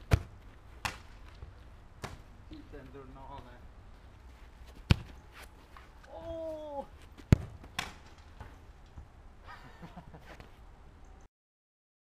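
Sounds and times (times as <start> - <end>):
football kicked hard: 0.0 - 1.0, 4.8 - 5.2, 7.2 - 7.9
person calling out: 6.1 - 6.9.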